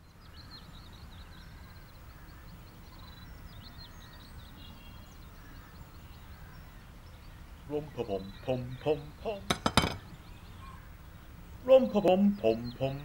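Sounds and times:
faint birds chirping: 0:00.0 - 0:13.0
low steady background noise: 0:00.0 - 0:13.0.

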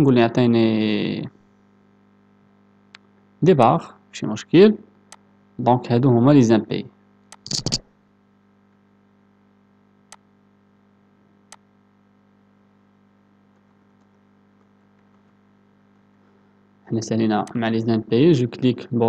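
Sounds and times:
low electrical hum: 0:00.0 - 0:19.0
faint computer clicks: 0:10.1 - 0:10.3.

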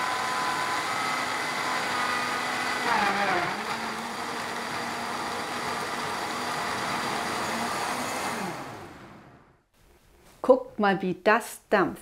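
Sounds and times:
blender motor whine: 0:00.0 - 0:09.6.

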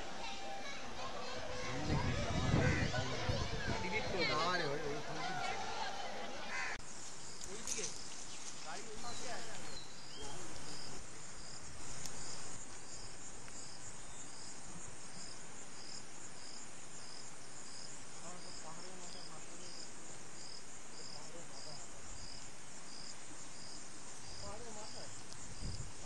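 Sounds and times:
insects chirping: 0:06.5 - 0:26.0.

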